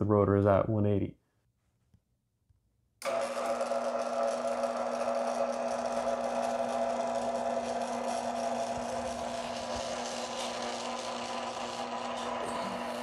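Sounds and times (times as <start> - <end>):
antenna rotator motor humming: 3.0 - 13.0.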